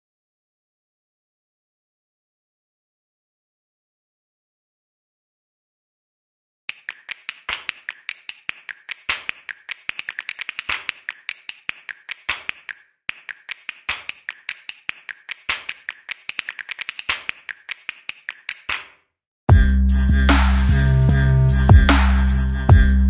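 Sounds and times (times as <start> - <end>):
rapid sharp clicks and taps: 6.7 - 19.0.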